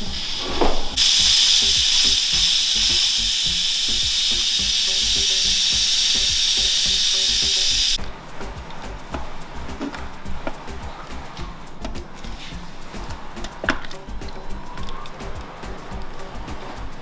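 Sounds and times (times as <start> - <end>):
pressure cooker steam hissing: 0.0 - 8.9
background music with a beat: 0.9 - 17.0.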